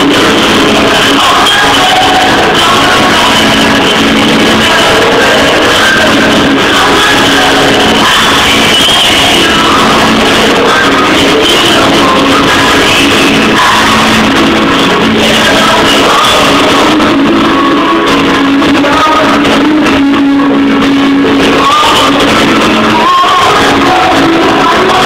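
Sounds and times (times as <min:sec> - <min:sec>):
band with guitar: 0:00.0 - 0:25.0
woman singing pop ballad: 0:00.1 - 0:14.3, 0:21.4 - 0:25.0.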